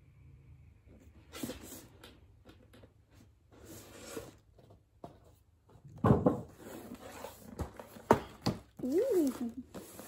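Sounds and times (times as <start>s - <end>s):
cardboard rustling and scraping: 2.8s - 10.0s
heavy thumps of box set down: 5.9s - 6.6s.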